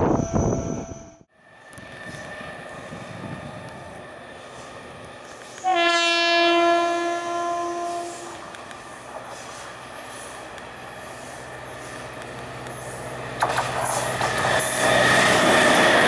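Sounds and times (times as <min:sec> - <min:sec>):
train running noise: 0:00.0 - 0:16.0
train horn blast: 0:05.6 - 0:08.4.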